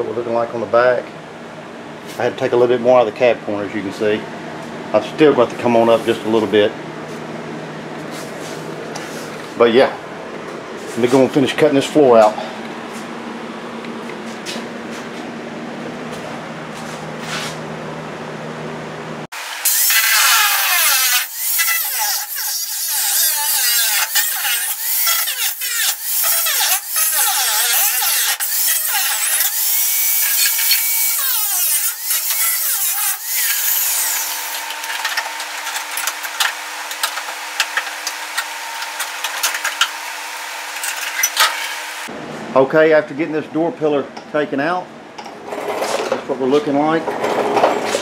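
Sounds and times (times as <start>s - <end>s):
steady low hum: 0.0s - 19.3s
angle grinder cutting sheet metal: 19.4s - 41.9s.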